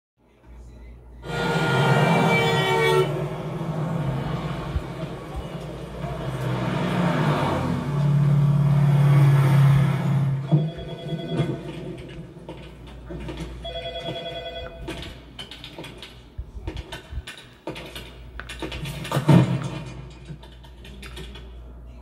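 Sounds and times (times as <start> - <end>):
street traffic hum: 0.6 - 22.0
car engine: 1.2 - 13.4
telephone ringing: 10.4 - 12.3, 13.4 - 15.2.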